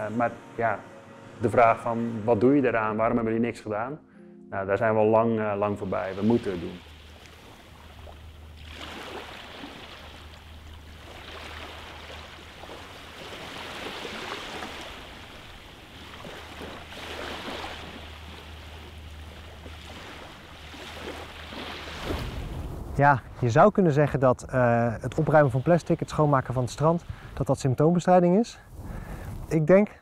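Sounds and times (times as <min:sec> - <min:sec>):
low rumble: 0:00.0 - 0:03.9, 0:22.2 - 0:23.8
small waves washing on shore: 0:05.9 - 0:23.0.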